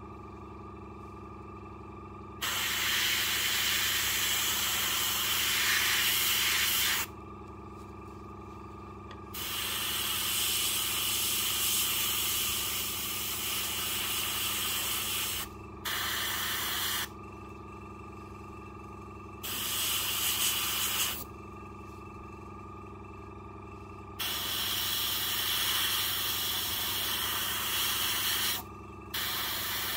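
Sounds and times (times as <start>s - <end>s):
compressor humming: 0.0s - 29.9s
airbrush spraying hiss: 2.4s - 7.1s, 9.4s - 17.1s, 19.4s - 21.2s, 24.2s - 28.6s, 29.2s - 29.9s.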